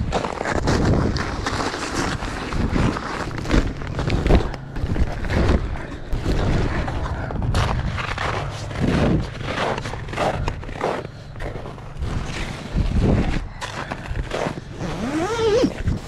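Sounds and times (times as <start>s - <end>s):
nylon fabric rustling: 14.7s - 16.0s.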